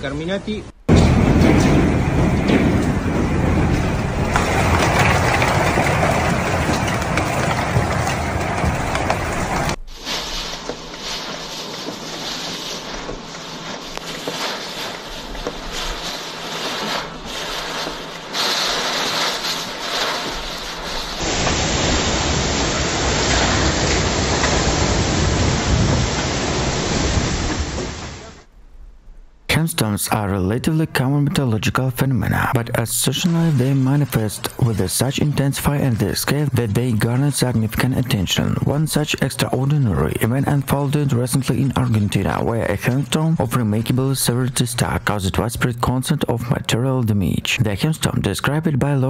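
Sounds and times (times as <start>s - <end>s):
wind buffeting microphone: 0.9s - 9.8s
hail and rain hissing: 0.9s - 28.5s, 32.6s - 45.2s.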